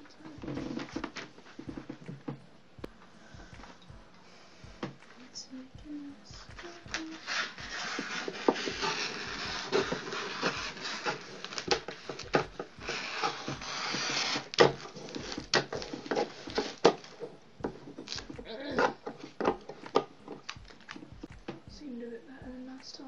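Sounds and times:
wrapping paper rustling: 6.6 - 21.2.

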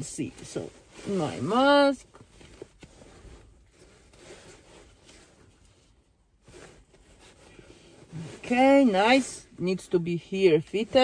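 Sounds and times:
face mask rustling: 0.0 - 11.0.

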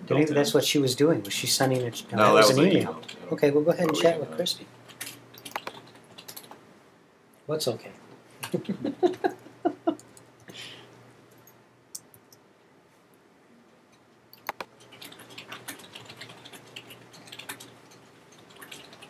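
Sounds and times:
typing on keyboard: 4.9 - 6.6, 14.4 - 19.0
mouse clicks: 5.4 - 5.8, 14.4 - 14.7.

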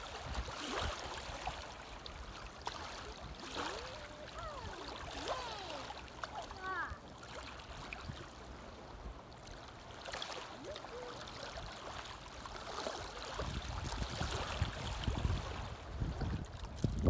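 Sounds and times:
waves lapping on gravel shore: 0.0 - 8.9, 9.5 - 17.0
wind buffeting microphone: 13.2 - 17.0.

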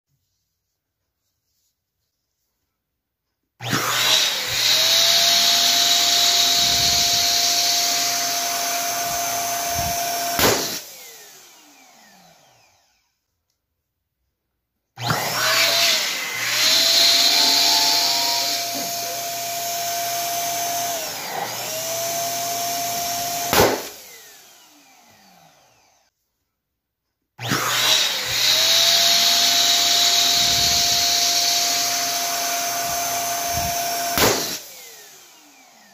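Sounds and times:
balloon bursting: 10.4 - 10.8, 23.5 - 24.0, 34.2 - 34.6.

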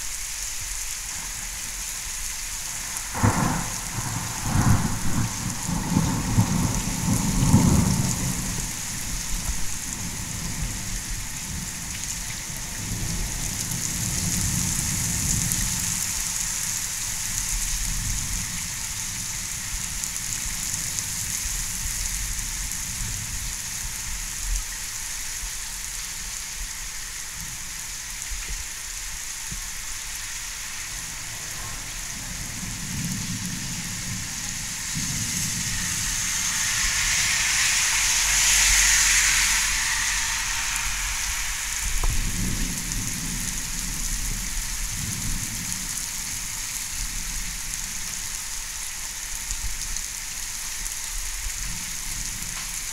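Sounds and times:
heavy rain pouring: 0.0 - 52.9
low thunder rumbling: 1.2 - 24.4, 30.9 - 48.3.

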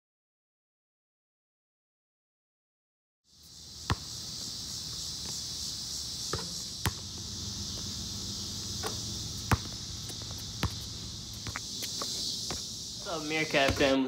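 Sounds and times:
crickets chirping: 3.3 - 14.0.

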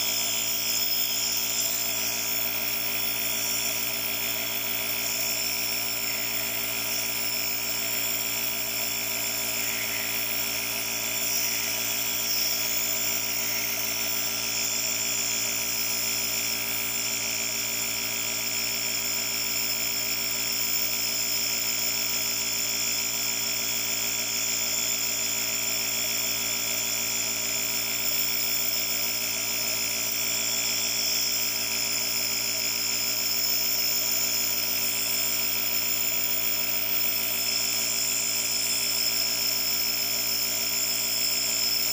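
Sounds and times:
compressor motor humming: 0.0 - 41.9.

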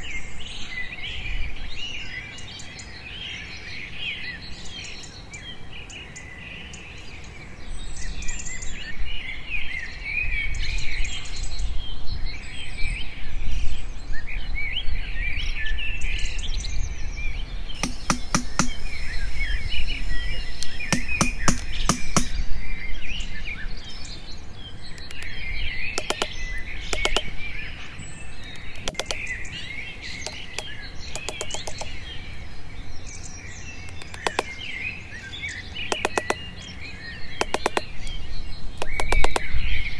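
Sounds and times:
birds chirping: 17.8 - 22.8, 23.5 - 39.9
metal blade knocking into wood: 38.8 - 39.5.

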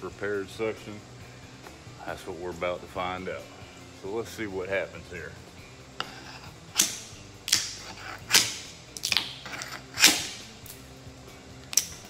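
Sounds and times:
hammer striking chisel: 6.0 - 10.4.

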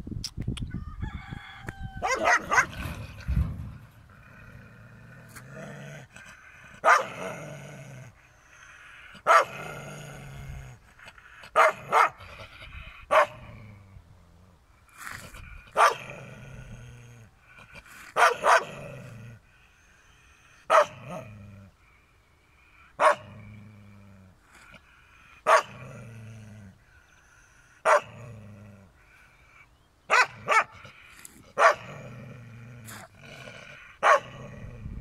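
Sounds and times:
dog barking: 2.0 - 2.7, 6.8 - 7.2, 9.2 - 9.6, 11.6 - 12.2, 13.1 - 13.4, 15.8 - 16.1, 18.2 - 18.8, 20.7 - 21.0, 23.0 - 23.2, 25.5 - 25.8, 27.8 - 28.1, 30.1 - 30.8, 31.6 - 31.9, 34.0 - 34.4.

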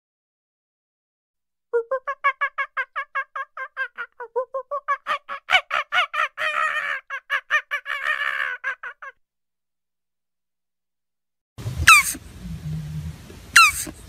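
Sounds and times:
rasping animal call: 11.8 - 12.2, 13.6 - 13.9
short pitched animal calls: 11.8 - 12.2, 13.6 - 13.9.

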